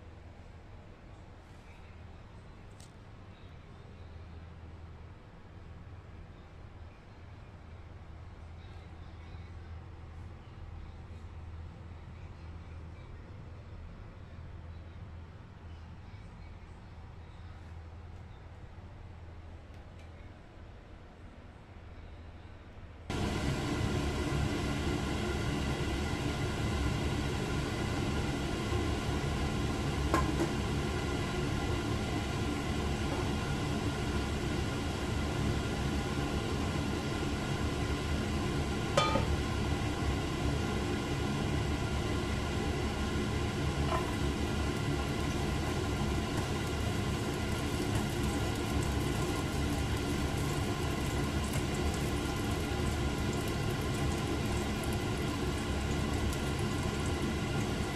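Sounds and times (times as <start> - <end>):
stovetop humming: 23.1 - 57.9.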